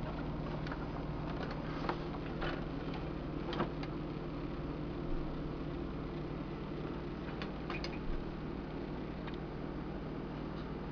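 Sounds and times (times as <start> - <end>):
steady hum: 0.0 - 10.9.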